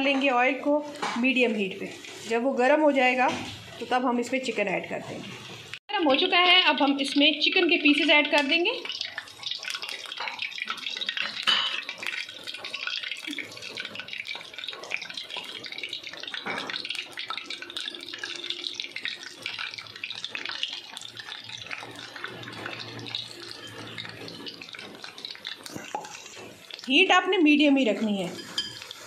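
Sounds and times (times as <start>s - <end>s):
hot oil sizzling and crackling: 0.0s - 29.0s.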